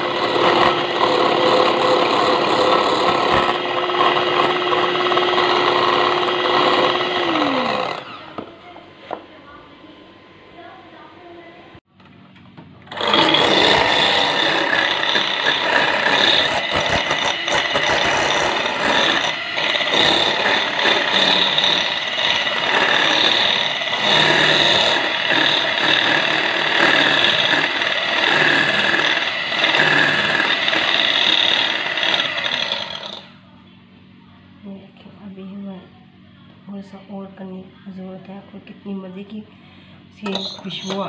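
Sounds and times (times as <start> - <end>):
electric hand mixer running: 0.0 - 8.5, 12.9 - 33.3, 40.2 - 41.0.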